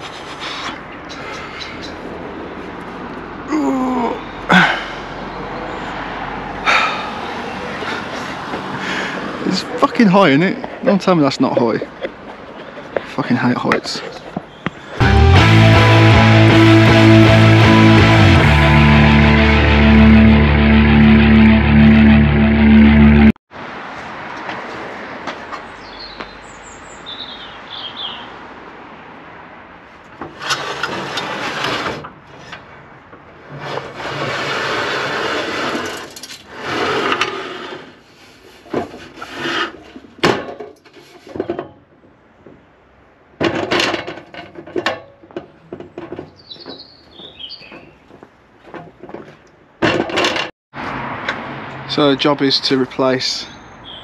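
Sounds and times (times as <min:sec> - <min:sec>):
birds chirping: 0:00.8 - 0:02.2, 0:12.4 - 0:15.0, 0:25.6 - 0:28.4, 0:46.2 - 0:48.2, 0:53.0 - 0:54.0
metal ladder scraping and rattling: 0:30.2 - 0:32.7, 0:33.4 - 0:41.8, 0:43.4 - 0:50.5
footsteps knocking on ladder rungs: 0:45.0 - 0:50.5.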